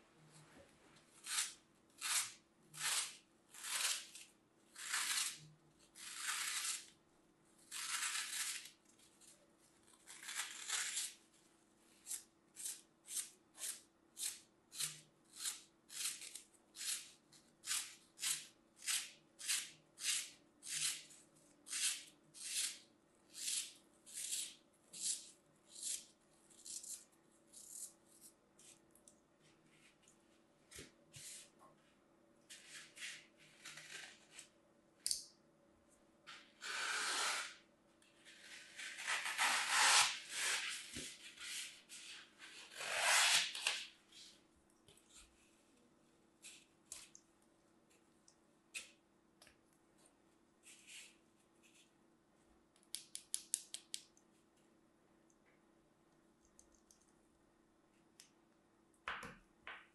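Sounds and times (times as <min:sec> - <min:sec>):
knife slicing foam: 0:06.0 - 0:06.9, 0:38.4 - 0:41.2.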